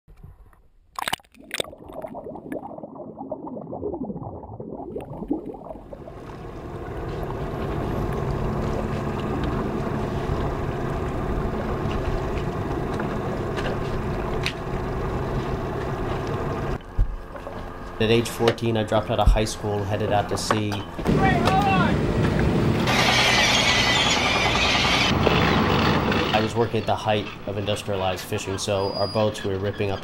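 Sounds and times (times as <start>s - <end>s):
water gurgling and lapping: 1.0s - 17.7s
boat motor running: 6.0s - 30.0s.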